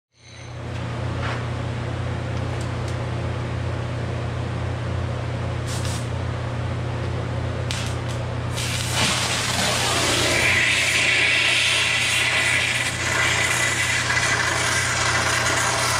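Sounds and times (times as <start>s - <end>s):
steady low hum: 0.2s - 15.9s
burning rod loud hiss: 5.6s - 6.1s, 7.7s - 15.9s
oxygen hissing: 8.5s - 15.9s.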